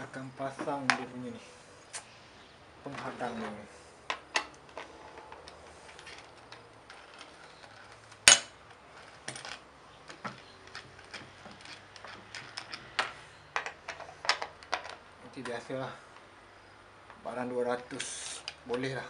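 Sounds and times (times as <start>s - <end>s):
hand tool working a bolt: 4.1s - 15.0s.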